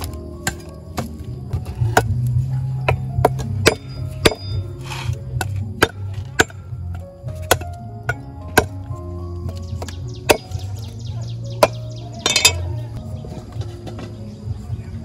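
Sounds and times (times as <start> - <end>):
cleaver chopping on wooden block: 0.0 - 10.7
background music: 0.0 - 15.0.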